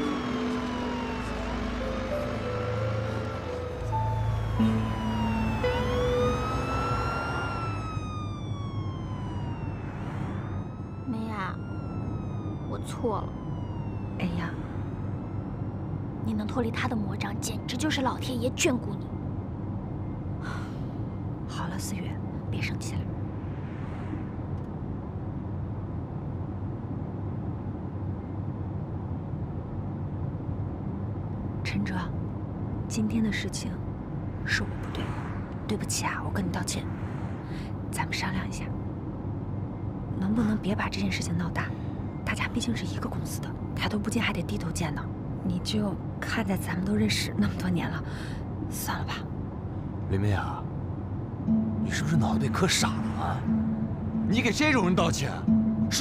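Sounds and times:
police siren wailing: 0.0s - 16.3s, 51.5s - 56.0s
low steady rumble: 0.0s - 56.0s.

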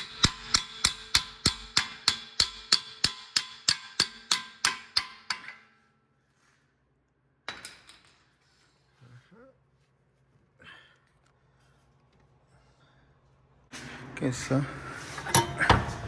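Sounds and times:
hammer striking metal: 0.0s - 6.0s.

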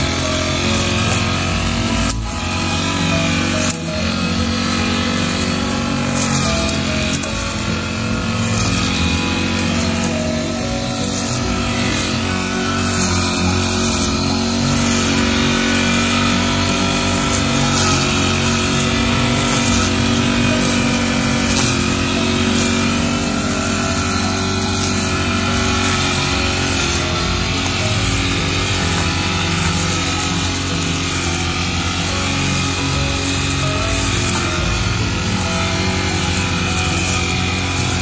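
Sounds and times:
lawn mower engine running: 0.0s - 38.0s.

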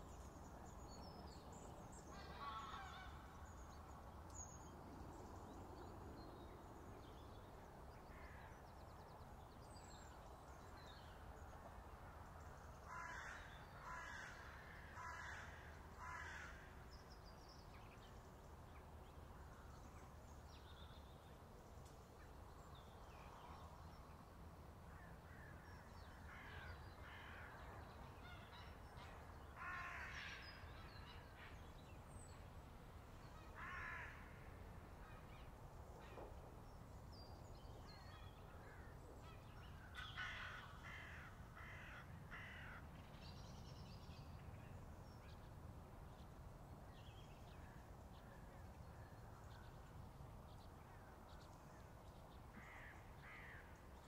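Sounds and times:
faint low outdoor hum: 0.0s - 54.0s
crows cawing: 12.9s - 16.7s, 29.6s - 30.4s, 33.6s - 34.3s, 39.9s - 42.9s, 52.6s - 53.7s.

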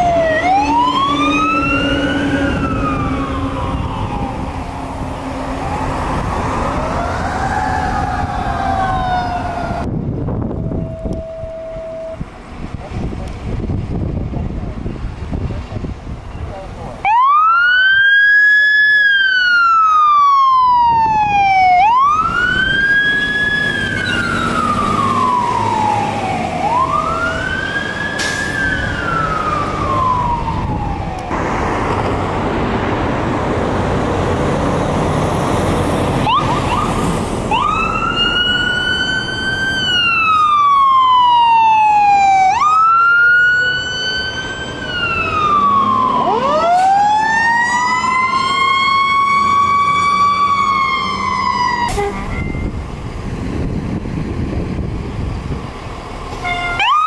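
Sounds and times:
emergency siren wailing: 0.0s - 12.3s, 17.0s - 52.9s, 56.3s - 57.0s
second siren climbing: 0.0s - 12.3s, 17.0s - 31.4s, 36.1s - 52.8s, 56.4s - 57.0s
engine and road noise rush: 0.0s - 57.0s.

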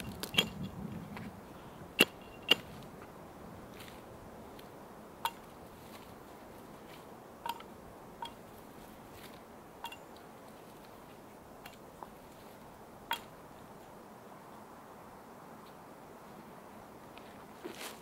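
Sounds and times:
axe chopping sapling: 0.0s - 0.7s, 2.0s - 2.9s
faint steady hiss: 0.0s - 18.0s.

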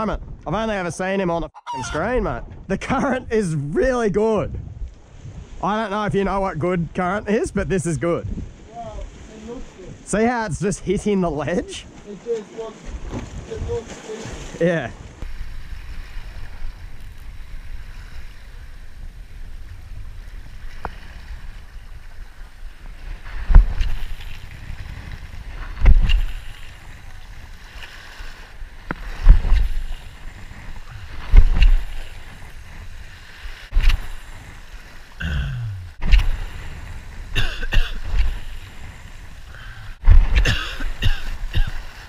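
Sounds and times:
wind on microphone: 0.0s - 12.0s, 12.7s - 42.0s
sea washing against rock: 11.0s - 42.0s
heavy low thumps: 31.0s - 31.9s, 35.2s - 36.5s, 40.0s - 41.7s.

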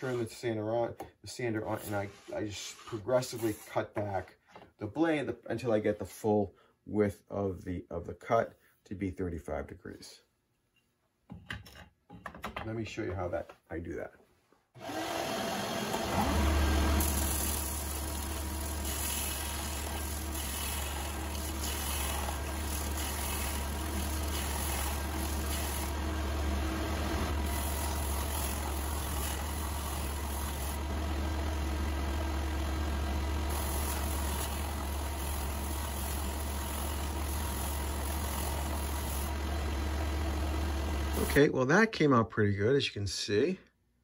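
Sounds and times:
sander motor hum: 14.8s - 41.4s
metal grinding hiss on belt: 17.0s - 25.9s.

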